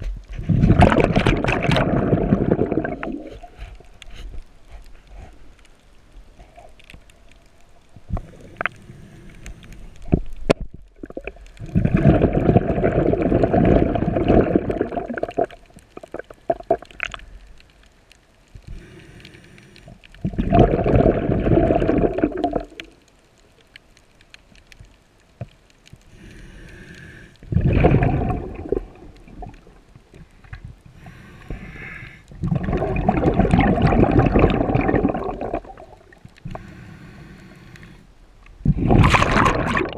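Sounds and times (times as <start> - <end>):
air bubbles underwater: 0.0 - 3.6, 10.0 - 17.4, 20.2 - 23.0, 27.4 - 31.7, 32.3 - 36.7, 38.6 - 39.9
faint hissing: 1.9 - 10.5, 11.2 - 39.1.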